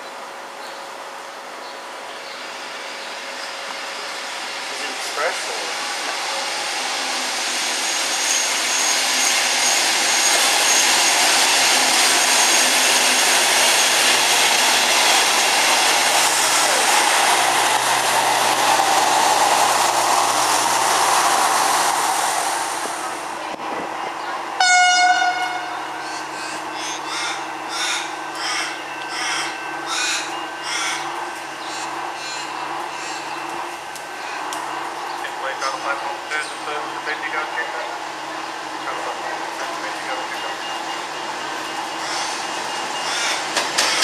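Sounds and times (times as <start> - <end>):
train rolling past: 0.0 - 44.0
loud bird call: 24.6 - 33.5, 42.0 - 44.0.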